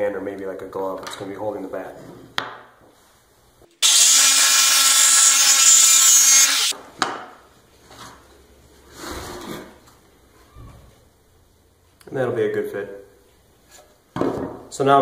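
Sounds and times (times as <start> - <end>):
jigsaw cutting wood: 3.8 - 6.7.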